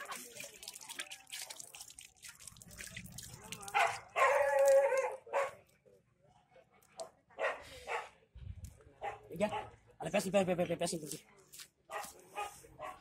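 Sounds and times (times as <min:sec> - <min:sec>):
dog barking: 0:03.7 - 0:05.6, 0:07.0 - 0:08.2, 0:09.0 - 0:09.8, 0:11.9 - 0:13.0.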